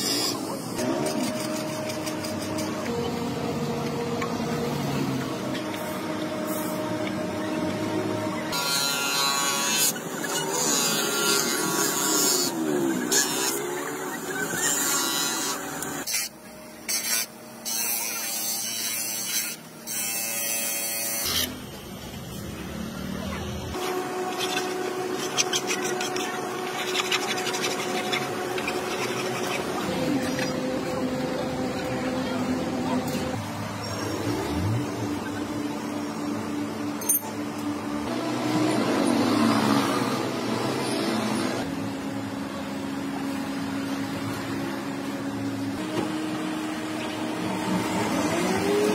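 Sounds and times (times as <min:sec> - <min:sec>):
bench buffer motor running: 0:00.0 - 0:48.9
low machine hum: 0:21.5 - 0:48.9
plastic pieces scraping and handled: 0:24.4 - 0:29.7.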